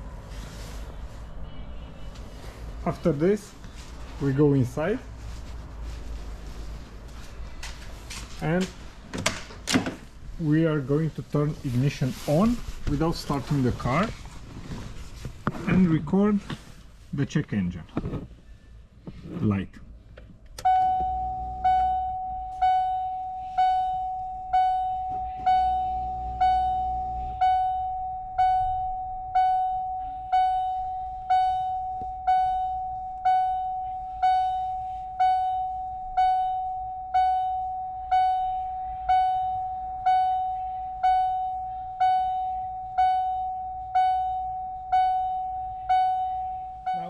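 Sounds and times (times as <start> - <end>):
car warning chime dinging: 20.6 - 47.0.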